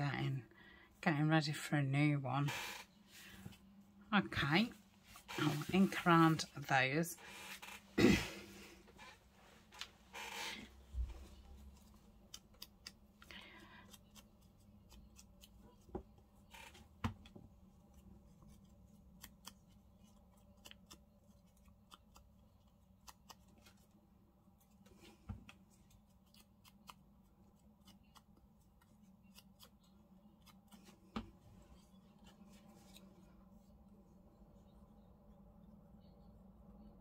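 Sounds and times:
faint low hum: 0.0s - 37.0s.

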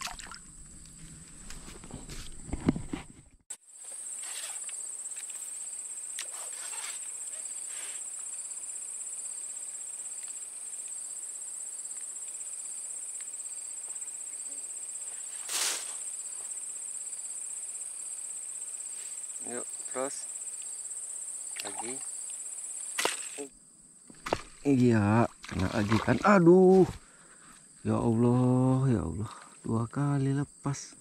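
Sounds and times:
insects trilling: 0.0s - 2.6s, 3.5s - 31.0s
short brush of noise: 15.4s - 16.0s.

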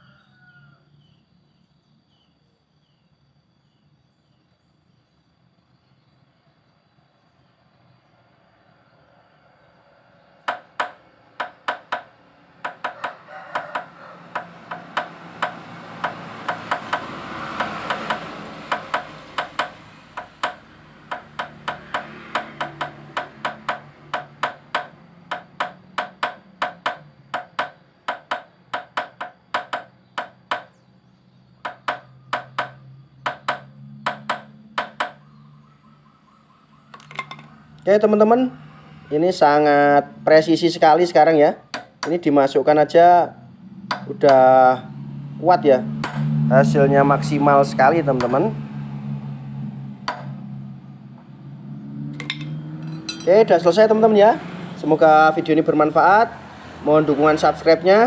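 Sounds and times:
hammer knocking on metal: 10.5s - 30.8s, 31.6s - 35.2s, 50.0s - 50.4s, 52.2s - 53.4s.

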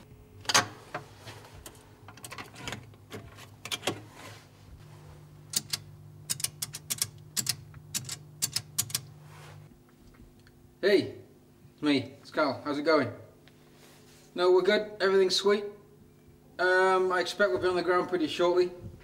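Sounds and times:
low steady hum: 0.0s - 19.0s
payphone clicks and knocks: 5.5s - 9.0s.

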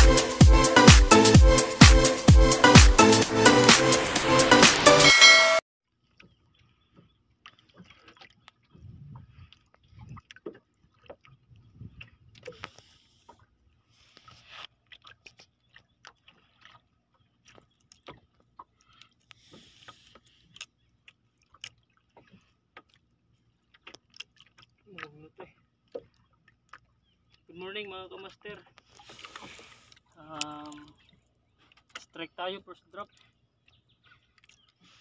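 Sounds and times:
electronic dance music: 0.0s - 5.6s.

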